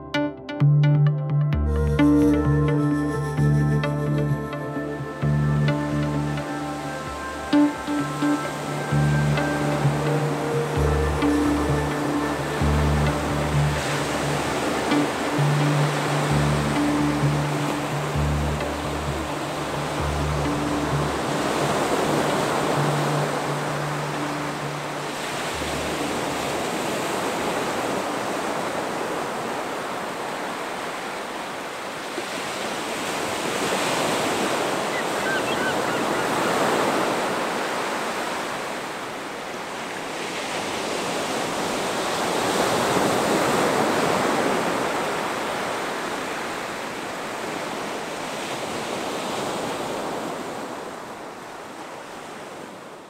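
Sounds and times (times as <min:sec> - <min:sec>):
sea waves breaking on beach: 0:05.8 - 0:53.0.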